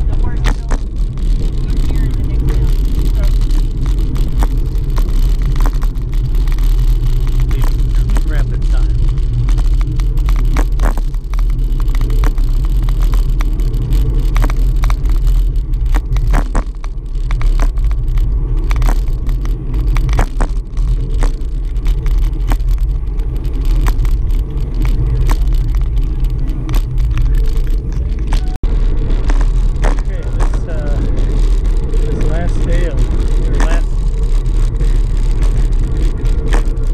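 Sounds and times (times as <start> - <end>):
wind buffeting microphone: 0.0 - 36.9
small clicks and knocks: 2.4 - 28.5.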